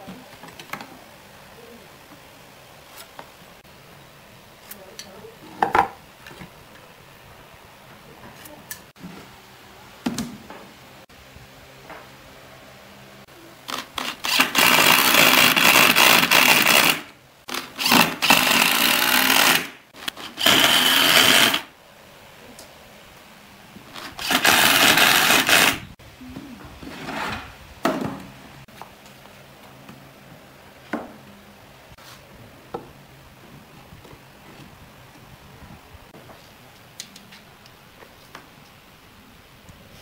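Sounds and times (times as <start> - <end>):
power drill driving screws: 13.7 - 21.7, 24.0 - 25.9.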